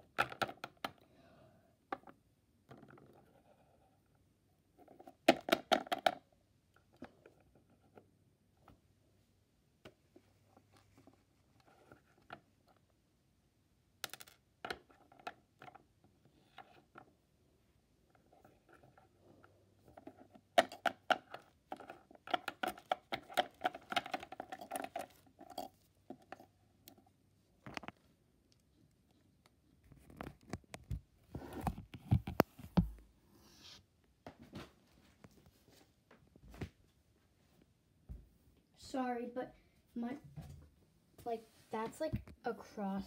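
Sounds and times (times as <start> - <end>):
plastic toys clicking on hard surface: 20.0 - 26.4.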